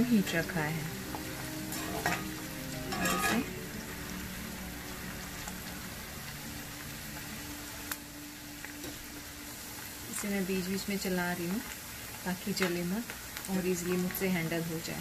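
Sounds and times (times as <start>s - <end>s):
onions sizzling in oil: 0.0s - 15.0s
metal spoon scraping pan: 1.7s - 2.3s, 2.9s - 3.5s.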